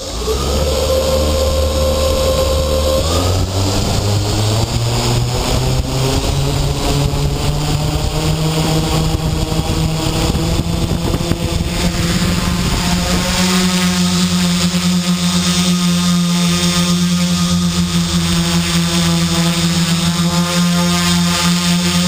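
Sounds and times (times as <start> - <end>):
quadcopter propellers humming: 0.0 - 22.0.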